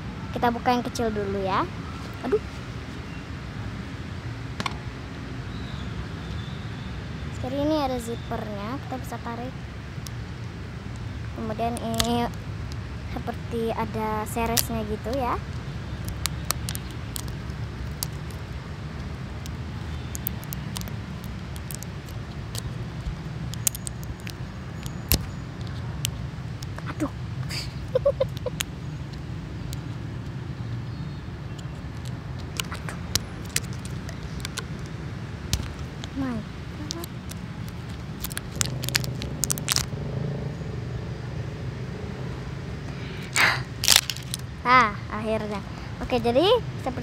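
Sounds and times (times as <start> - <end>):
low engine hum: 9.7 - 47.0
plastic toy capsule clicking: 11.7 - 12.2, 19.4 - 22.7, 23.5 - 25.3, 31.9 - 34.9, 35.5 - 36.2, 36.8 - 39.9, 43.8 - 44.4
plastic wrapping crinkling: 16.1 - 18.4, 19.4 - 22.7, 23.5 - 25.2, 32.0 - 34.6, 36.8 - 39.9, 43.8 - 44.4.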